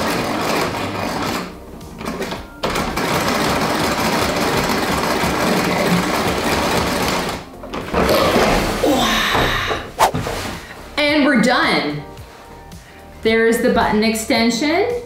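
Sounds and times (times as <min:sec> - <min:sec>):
sewing machine stitching: 0:00.0 - 0:08.0.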